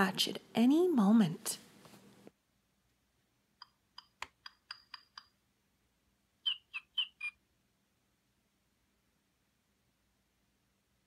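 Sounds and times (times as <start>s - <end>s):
short high chirps: 6.4s - 7.4s.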